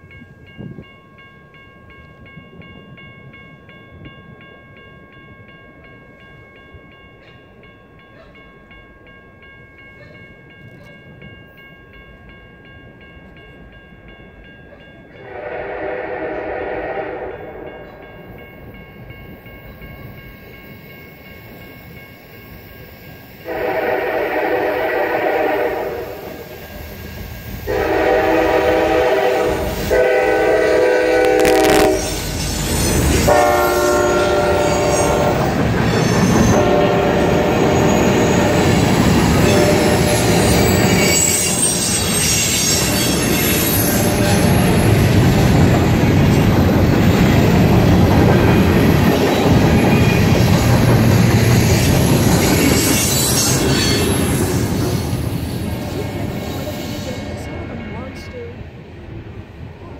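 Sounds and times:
train horn blasts: 0:15.2 - 0:18.0, 0:23.4 - 0:26.5, 0:27.7 - 0:32.2, 0:33.2 - 0:35.5, 0:36.4 - 0:38.7, 0:39.4 - 0:41.5, 0:42.8 - 0:44.6
train wheels rumbling and clattering: 0:22.8 - 0:59.9.

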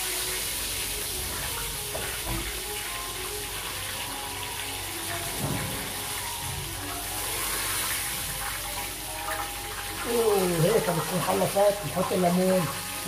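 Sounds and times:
fish frying in hot oil: 0:00.0 - 0:13.0.

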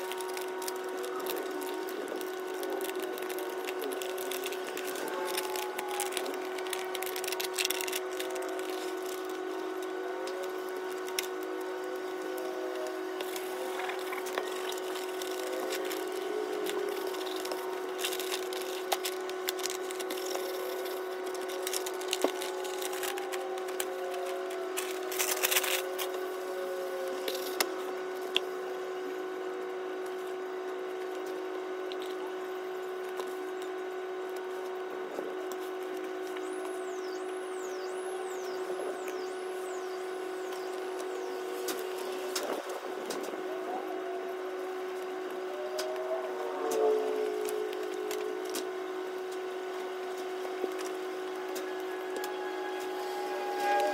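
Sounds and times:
paper rustling and crinkling: 0:00.0 - 0:28.4, 0:45.0 - 0:53.9
steady hum: 0:00.0 - 0:53.9.

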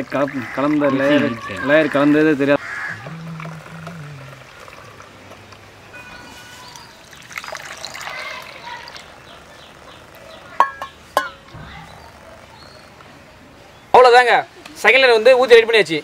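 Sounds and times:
liquid trickling into cups: 0:00.0 - 0:11.4.

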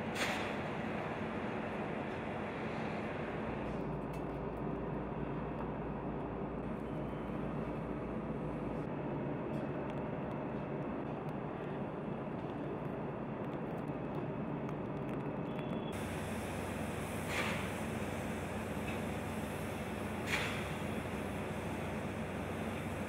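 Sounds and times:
industrial machinery rumble: 0:00.0 - 0:23.0
hiss: 0:00.1 - 0:01.2, 0:15.9 - 0:23.0.

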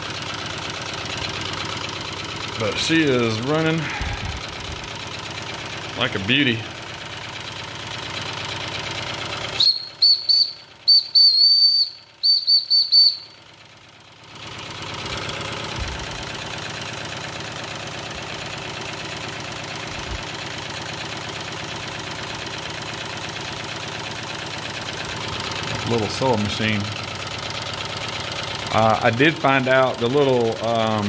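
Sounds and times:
model steam engine running: 0:00.0 - 0:13.1, 0:14.5 - 0:31.0
steam whistle short high toots: 0:09.6 - 0:13.3.

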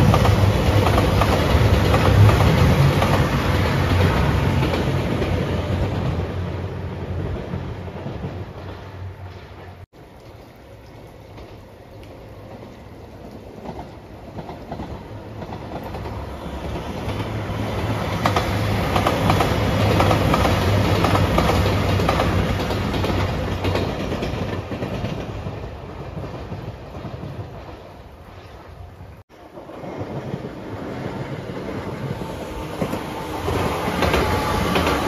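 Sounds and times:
train wheels clattering over rail joints: 0:13.5 - 0:27.9, 0:32.8 - 0:35.0
diesel train engine hum: 0:31.1 - 0:35.0.

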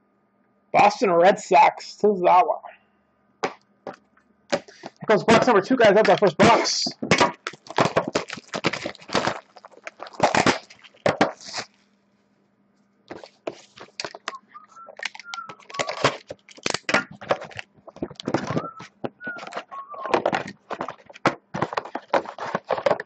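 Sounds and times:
cardboard box crackling and scraping: 0:07.4 - 0:11.7, 0:13.1 - 0:14.3, 0:15.4 - 0:23.0.

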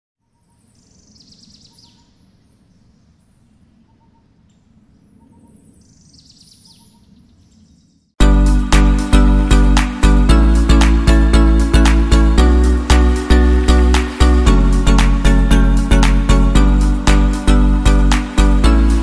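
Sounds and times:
low steady background noise: 0:00.2 - 0:08.1
faint birds chirping: 0:00.2 - 0:08.2
loud music with strong beat: 0:08.2 - 0:19.0.

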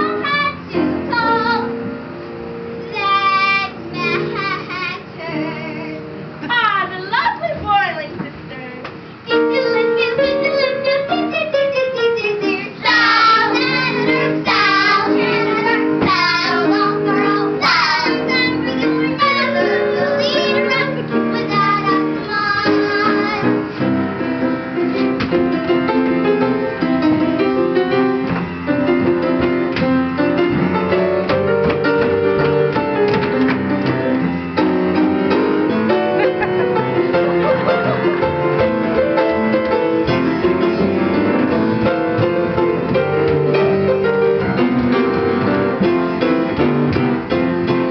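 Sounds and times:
piano accompaniment: 0:00.0 - 0:47.9
children singing: 0:12.4 - 0:23.6.

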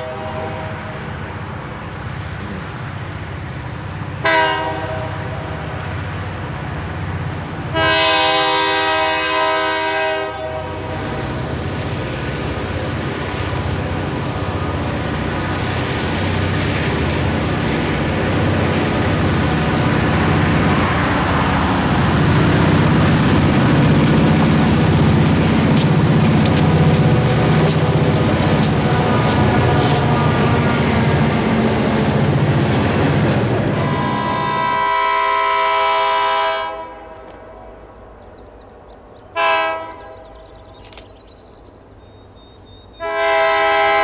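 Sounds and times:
train air horn blasts: 0:00.0 - 0:01.2, 0:04.2 - 0:05.6, 0:07.7 - 0:11.3, 0:25.3 - 0:31.2, 0:33.7 - 0:37.3, 0:39.4 - 0:40.3, 0:43.0 - 0:44.0
diesel locomotive engines rumbling: 0:00.0 - 0:44.0
train wheel clicks: 0:22.4 - 0:30.0.

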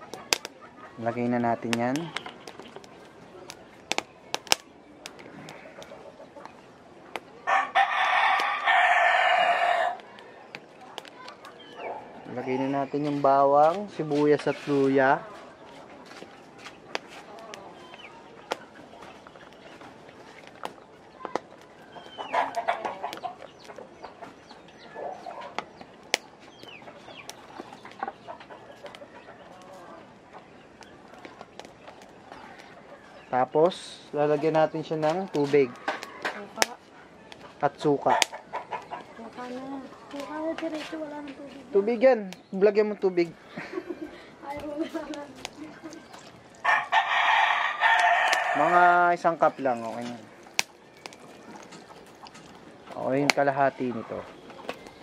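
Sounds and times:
chickens clucking: 0:00.0 - 0:55.0
rooster crowing: 0:07.4 - 0:10.4, 0:46.6 - 0:48.9.

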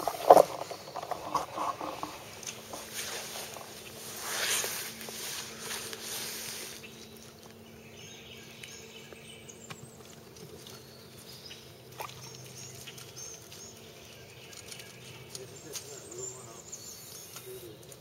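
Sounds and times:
insect calls: 0:00.0 - 0:18.0.

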